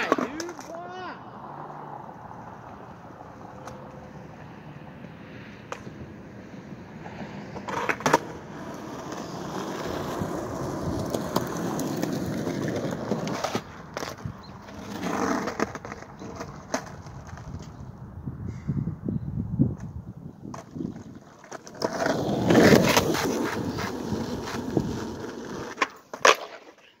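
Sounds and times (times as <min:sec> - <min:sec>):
skateboard deck clacking: 0:00.0 - 0:00.8, 0:07.1 - 0:17.8, 0:20.5 - 0:26.8
skateboard wheels on asphalt: 0:00.0 - 0:27.0.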